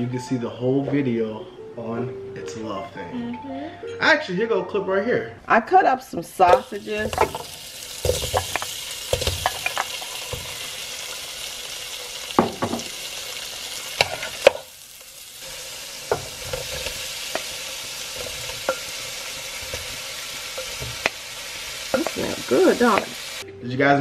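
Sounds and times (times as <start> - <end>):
sausage sizzling in oil: 6.4 - 23.4.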